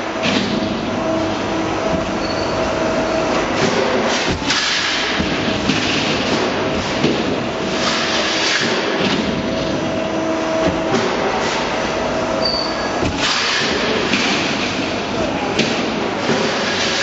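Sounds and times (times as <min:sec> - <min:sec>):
machinery noise with humming tones: 0:00.0 - 0:17.0.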